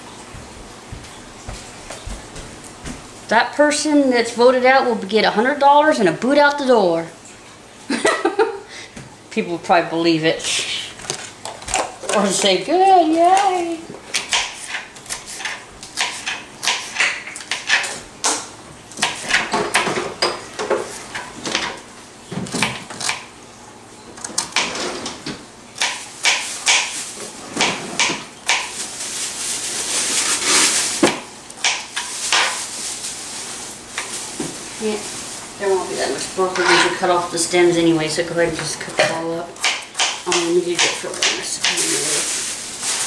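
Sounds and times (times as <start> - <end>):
kitchen items clattering: 11.0 - 13.8, 31.8 - 39.5, 40.3 - 43.0
knife chopping on plastic board: 14.1 - 18.4, 25.8 - 26.9, 39.0 - 41.8.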